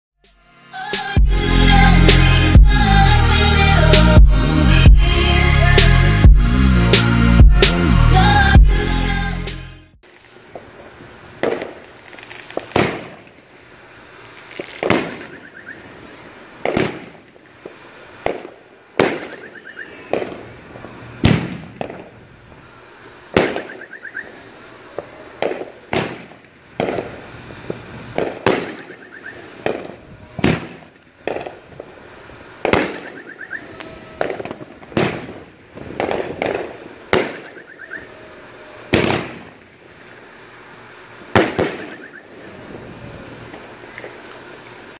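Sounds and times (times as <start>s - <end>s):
fireworks cake bangs: 11.4s - 13.4s, 14.5s - 15.5s, 16.6s - 20.6s, 21.2s - 22.2s, 23.3s - 31.9s, 32.6s - 33.4s, 34.2s - 37.6s, 38.9s - 39.6s, 41.3s - 42.1s.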